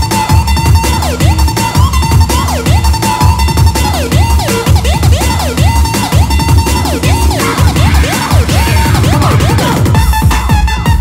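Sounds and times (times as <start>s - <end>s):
sliding synth lead: 0.0s - 10.1s
electronic dance music: 0.0s - 11.0s
heavy kick drum beat: 0.0s - 11.0s.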